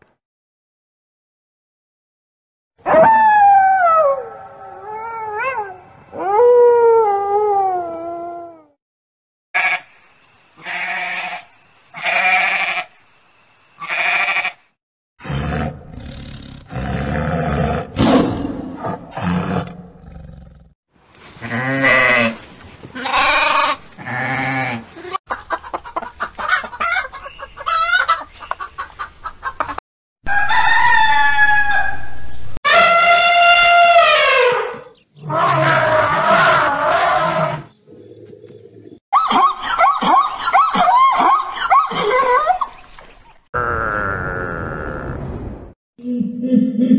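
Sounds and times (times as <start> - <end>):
wolf howling: 2.8 - 8.8
tiger roaring: 15.2 - 20.7
elephant trumpeting: 32.7 - 37.7.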